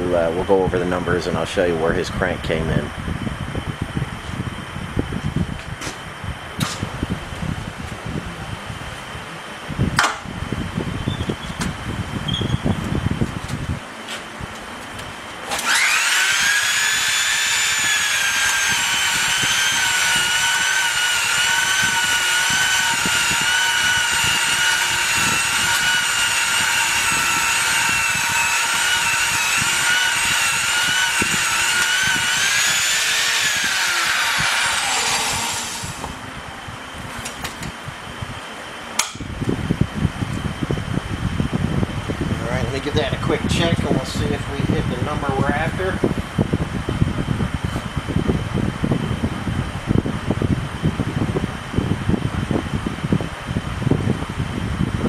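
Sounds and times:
low machine hum: 0.0 - 55.0
belt polisher whining: 15.5 - 36.2.

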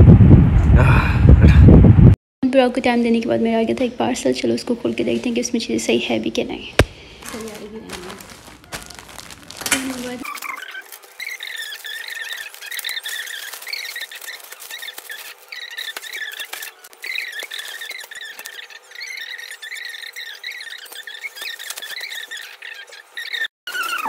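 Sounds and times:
plastic crinkling and rustling: 6.8 - 18.7
scissors cutting plastic: 6.8 - 19.7, 20.5 - 22.4
high squeaky chirps: 6.9 - 24.0.

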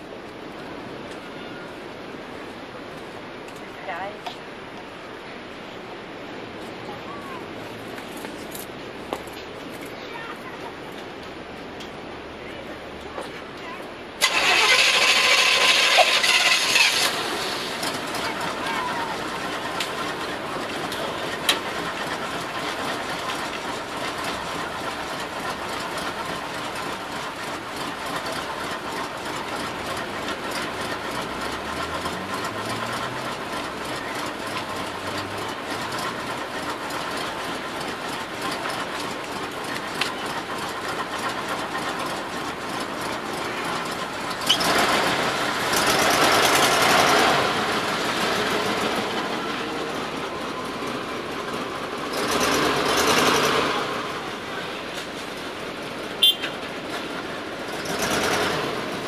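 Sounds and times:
vehicle engine idling: 12.0 - 59.0.

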